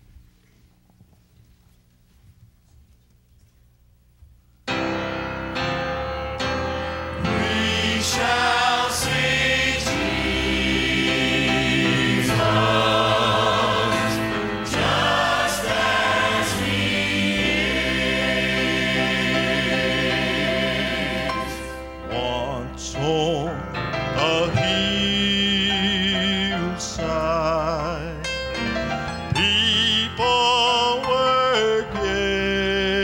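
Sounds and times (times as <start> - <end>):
grand piano chords: 4.6 - 33.0
gospel singing with vibrato: 6.8 - 28.4, 29.1 - 33.0.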